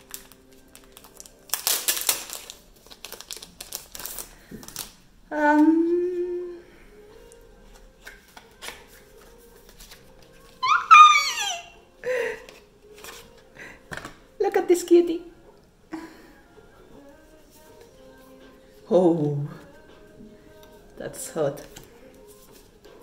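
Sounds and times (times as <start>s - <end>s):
plastic wrapper rustling: 0.0s - 5.0s
high-pitched falling squeal: 10.6s - 11.7s.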